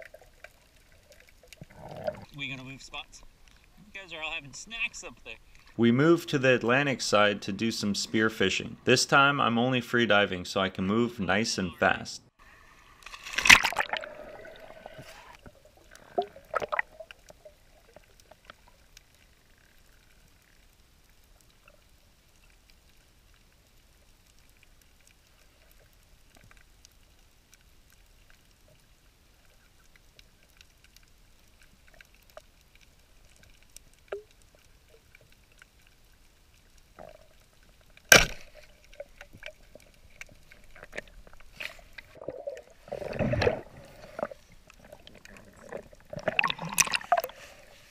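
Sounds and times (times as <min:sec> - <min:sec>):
water sloshing and bubbling: 0:00.0 - 0:08.8, 0:12.4 - 0:47.9
faint underwater hush: 0:01.5 - 0:05.8.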